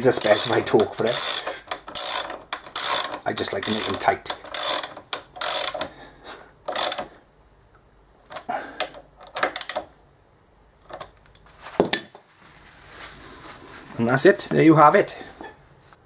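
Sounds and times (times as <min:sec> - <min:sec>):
socket ratchet clicking: 0:00.1 - 0:05.9, 0:06.7 - 0:07.1, 0:08.3 - 0:09.9.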